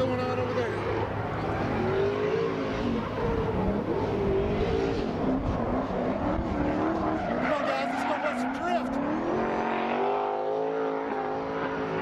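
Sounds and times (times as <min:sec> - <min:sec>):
car engines revving: 0:00.0 - 0:12.0.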